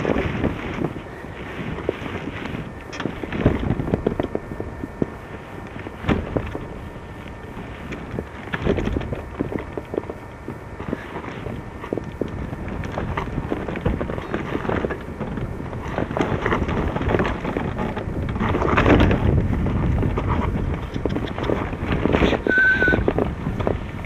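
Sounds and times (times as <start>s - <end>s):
wind on microphone: 0.0s - 24.0s
brief high tone: 22.4s - 23.1s.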